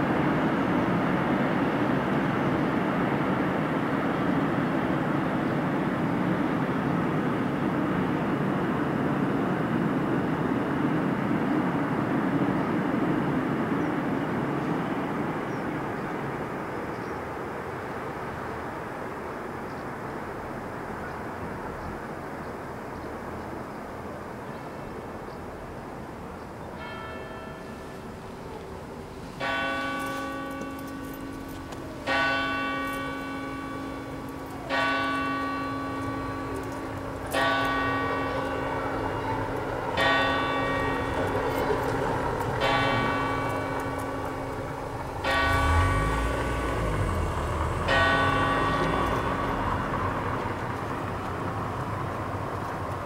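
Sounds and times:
church bell tolling: 26.8 - 52.2
low rumble: 38.4 - 52.8.

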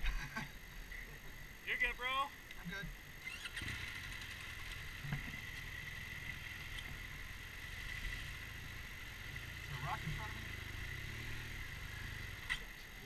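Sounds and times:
motorcycle engine idling: 3.0 - 13.0.

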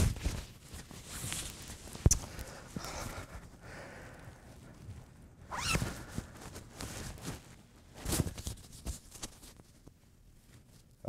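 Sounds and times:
robe rustling: 4.4 - 10.8.

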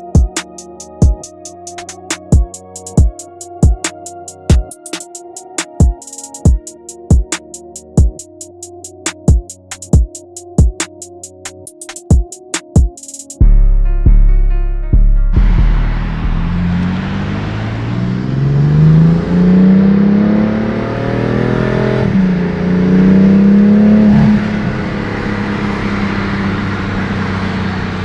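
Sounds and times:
car engine accelerating: 15.3 - 28.0.

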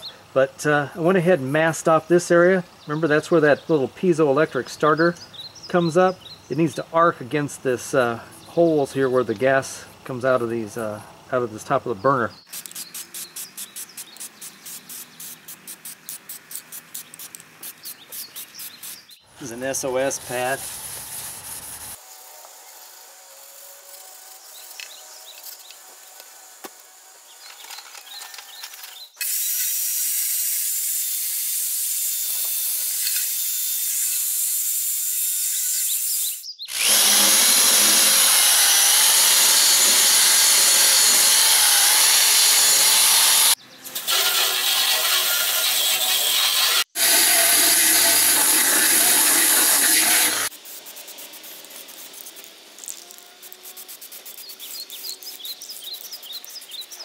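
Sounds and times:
aerosol spray can hissing: 12.5 - 19.1, 20.2 - 22.0, 29.2 - 36.2, 46.6 - 57.0
steel wool scrubbing sheet metal: 44.0 - 50.5.

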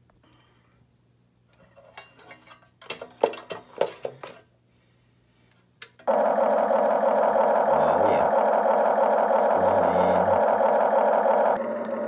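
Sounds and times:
motor hum with high whine: 5.8 - 12.0.

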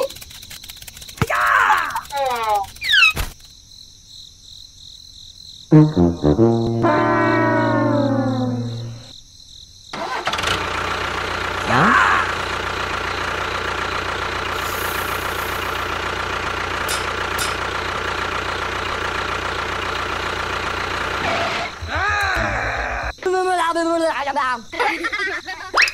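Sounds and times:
descending brass slide: 5.7 - 9.1
tractor engine running: 10.0 - 22.3.

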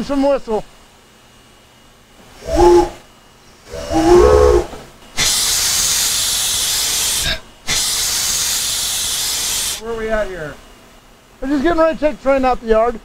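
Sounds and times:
steam whistle: 2.4 - 3.0
steam hissing: 5.2 - 9.8.

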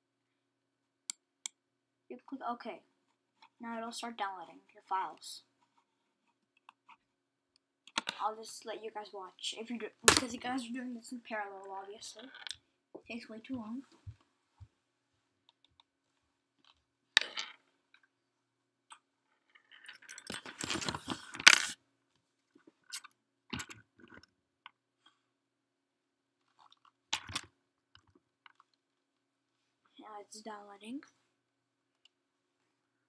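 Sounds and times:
handling rustles and clicks: 18.9 - 21.8.

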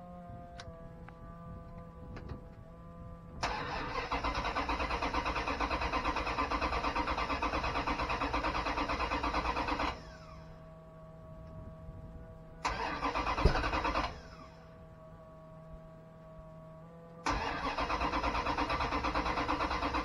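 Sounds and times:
engine cranking on starter: 3.4 - 10.4, 12.6 - 14.5, 17.2 - 20.0.

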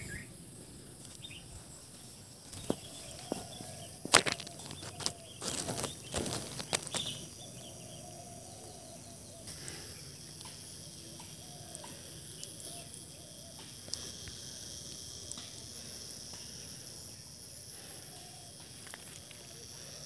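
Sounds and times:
high insect drone: 0.0 - 20.0
rustling: 2.5 - 7.3
faint bird calls: 2.6 - 13.9.

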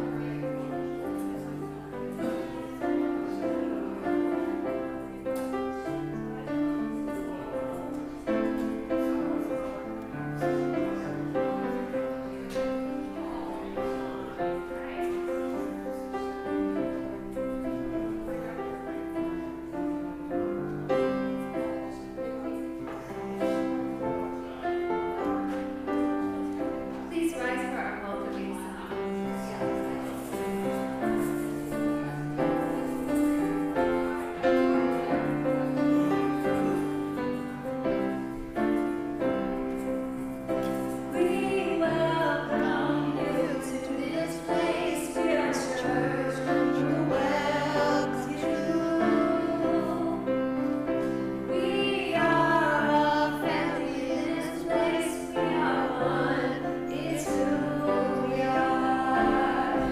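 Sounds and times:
held keyboard chords: 0.0 - 59.9
choir singing: 41.1 - 59.9.

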